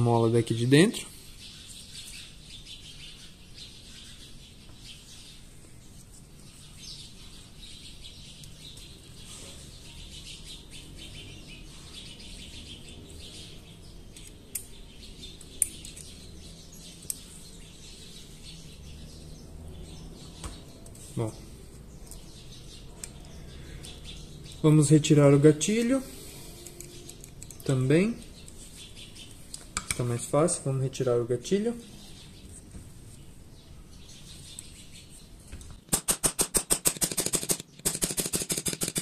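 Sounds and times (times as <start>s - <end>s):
birds chirping: 0.0s - 36.1s
metal gun parts clicking: 26.6s - 27.6s.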